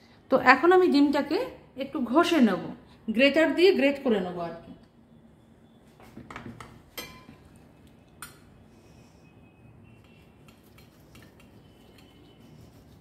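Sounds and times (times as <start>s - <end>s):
egg being grated: 10.0s - 13.0s.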